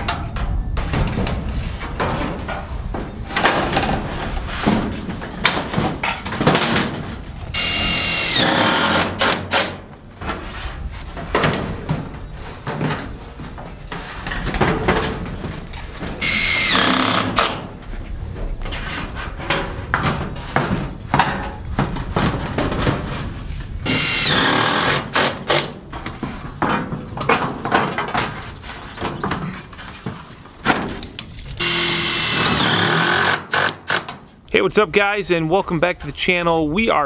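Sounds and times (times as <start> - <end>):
cordless screw gun whine: 7.6 - 9.3, 16.2 - 17.4, 23.9 - 25.2, 31.6 - 34.0.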